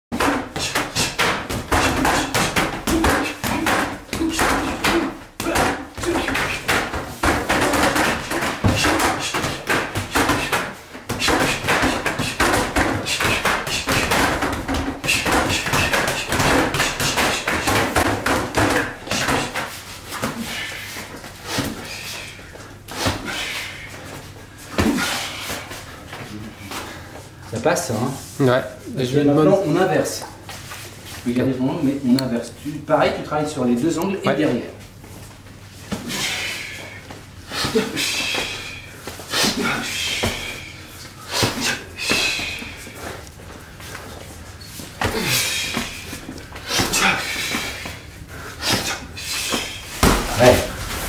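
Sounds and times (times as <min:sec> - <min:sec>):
boxing gloves striking punching bags: 0:00.2 - 0:20.4, 0:48.6 - 0:51.0.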